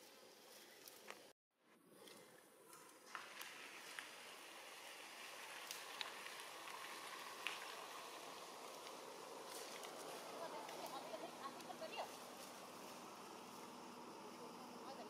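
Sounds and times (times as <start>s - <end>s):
faint outdoor hiss: 2.2s - 15.0s.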